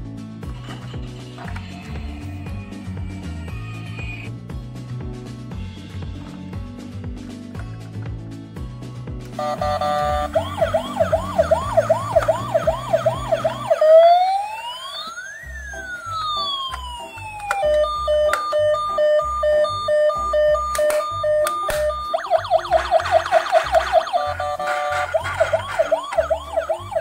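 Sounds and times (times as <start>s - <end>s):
toy electronic siren: 9.4s - 27.0s.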